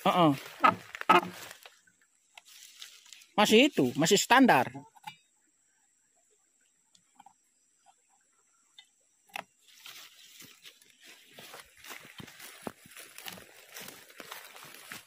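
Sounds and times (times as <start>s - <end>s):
rustling crackle: 0.4s - 1.8s, 2.4s - 3.4s, 9.6s - 15.0s.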